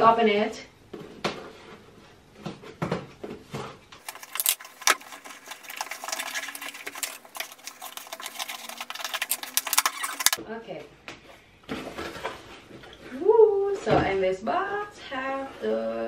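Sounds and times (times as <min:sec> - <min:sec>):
scissors scraping packing tape: 0:04.0 - 0:10.4
tape peeling off cardboard: 0:04.0 - 0:10.4.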